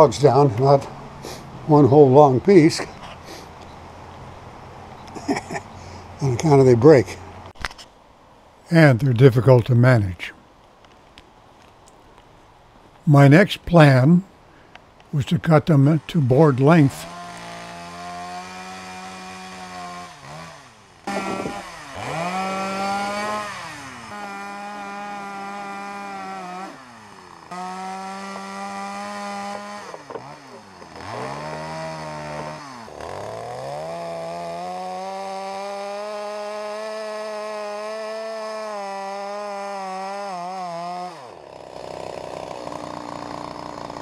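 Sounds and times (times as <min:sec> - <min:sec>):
chainsaw cutting log: 0:15.2 - 0:44.0.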